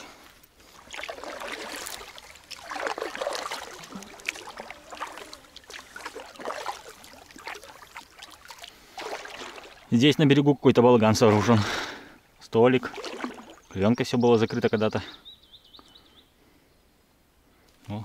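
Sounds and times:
kayak paddle splashing water: 0:00.0 - 0:10.0, 0:12.8 - 0:13.7.

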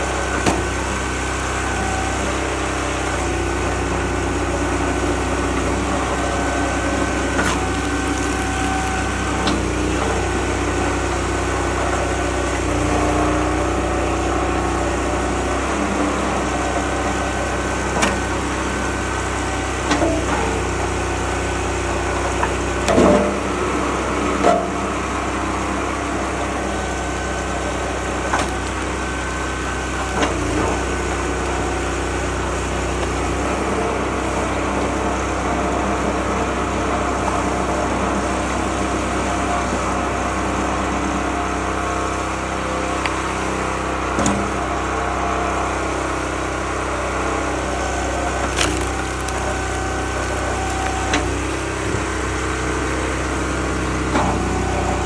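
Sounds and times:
small gasoline engine running: 0:00.0 - 0:55.0
wood blocks cracking apart: 0:06.9 - 0:10.0, 0:28.2 - 0:29.0, 0:48.0 - 0:51.5.

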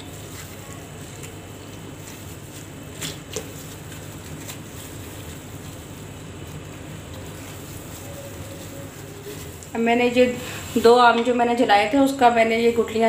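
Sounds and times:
soft squelching of pulp: 0:00.0 - 0:09.8.

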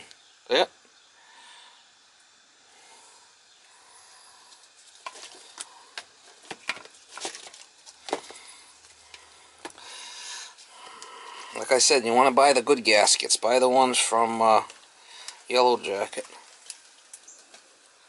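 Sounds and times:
clicks and rustles: 0:04.5 - 0:09.8, 0:16.1 - 0:17.8
hoses and fittings handled: 0:04.5 - 0:09.8.

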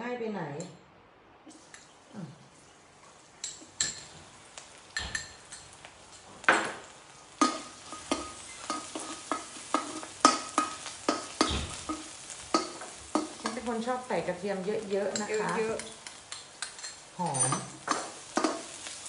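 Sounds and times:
garlic sizzling in oil: 0:01.5 - 0:19.0
spoon clinking on bowl: 0:15.1 - 0:18.6.

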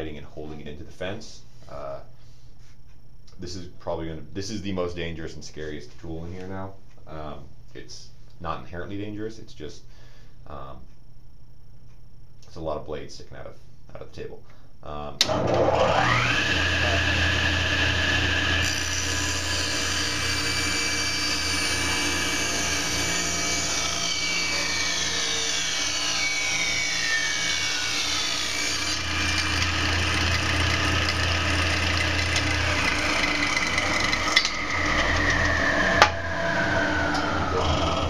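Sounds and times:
table saw blade cutting wood: 0:15.2 - 0:38.0
table saw motor whine: 0:15.2 - 0:38.0.

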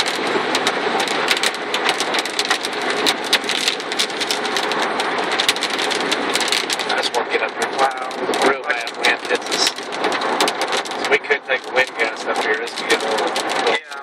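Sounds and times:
heavy rain on car roof: 0:00.0 - 0:14.0.

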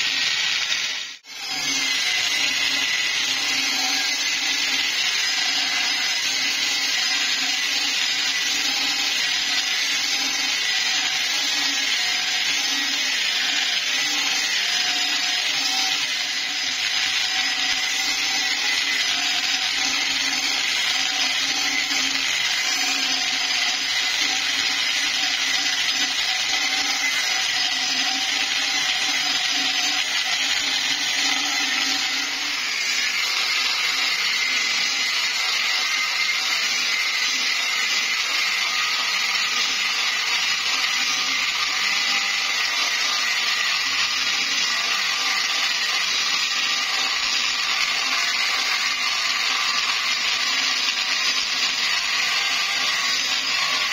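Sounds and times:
angle grinder cutting steel: 0:00.0 - 0:53.9.

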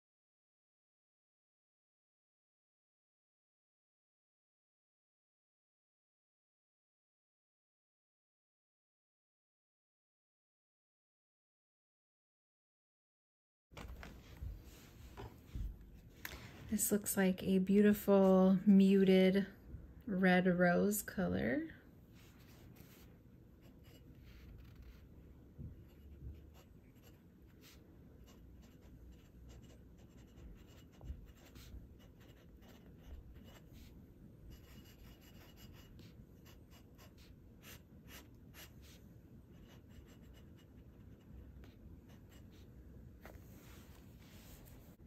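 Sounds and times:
pen nib scratching on paper: 0:23.6 - 0:25.0, 0:25.9 - 0:33.9, 0:34.5 - 0:42.7.

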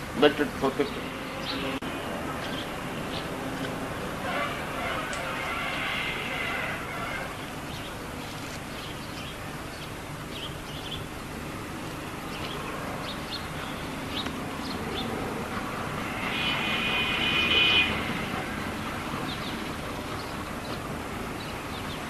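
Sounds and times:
birds chirping: 0:00.0 - 0:22.0
steady high tones: 0:14.8 - 0:19.5.

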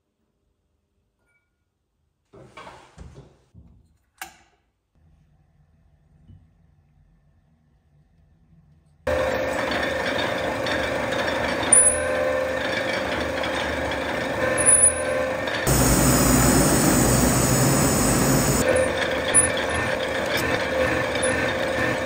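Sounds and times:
rolling mill squeaks: 0:09.3 - 0:22.0
gas torch flame hissing: 0:15.7 - 0:18.7
rolling mill geared hum: 0:15.7 - 0:22.0.

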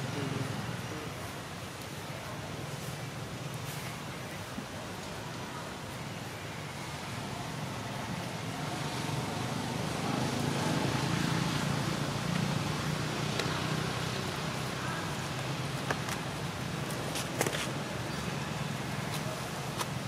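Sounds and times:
outdoor noise: 0:00.0 - 0:20.0
vehicle engine rumble: 0:06.7 - 0:20.0.

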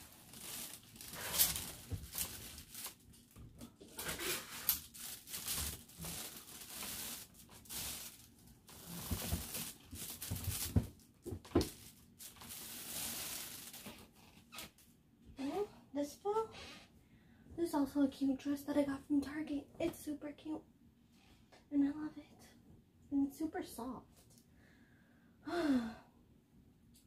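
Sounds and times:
fabric rustling: 0:00.0 - 0:10.9.

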